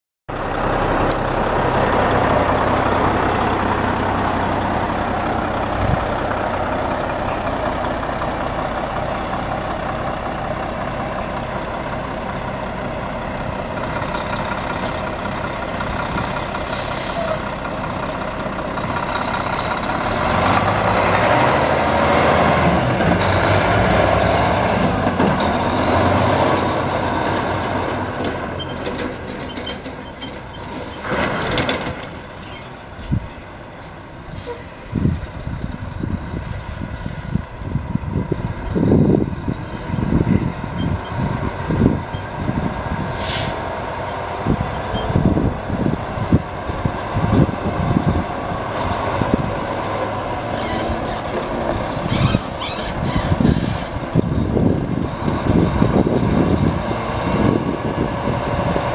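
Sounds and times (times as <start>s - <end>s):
diesel truck engine running: 0.3s - 58.9s
brief hiss: 15.6s - 17.5s, 43.2s - 43.7s.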